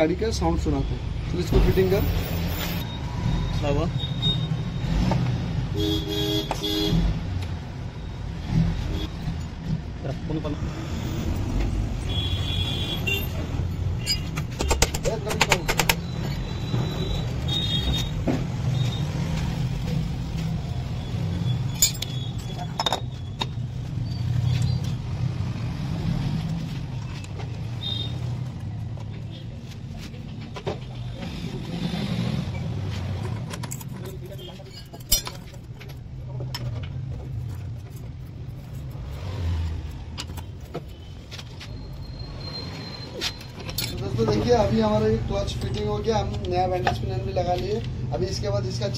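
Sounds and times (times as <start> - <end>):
light metallic clinks: 21.7 - 23.0
socket wrench clinking on metal: 21.7 - 23.1, 33.5 - 36.0, 43.5 - 44.3.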